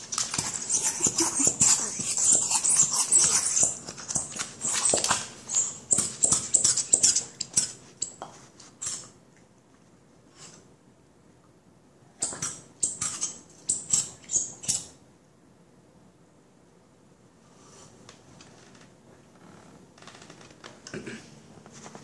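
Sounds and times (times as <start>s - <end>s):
dog vocal noises: 0.0s - 7.6s
dog scratching on wooden floor: 0.0s - 7.8s.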